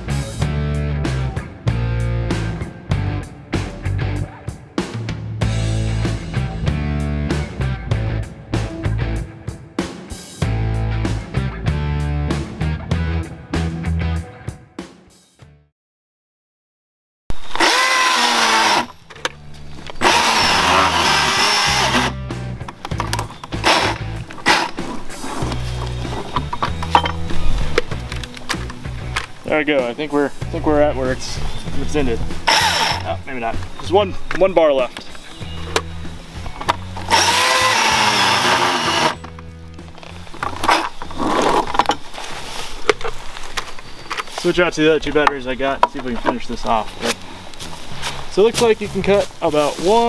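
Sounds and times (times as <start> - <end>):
chainsaw cutting through log: 17.4 - 19.0, 20.0 - 22.3, 23.6 - 25.4, 32.4 - 33.1, 36.9 - 39.2.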